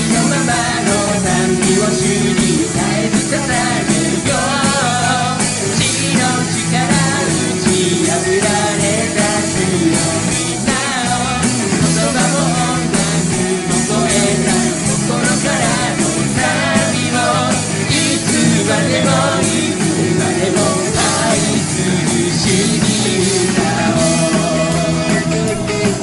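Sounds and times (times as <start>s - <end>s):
live rock band playing: 0.0s - 26.0s.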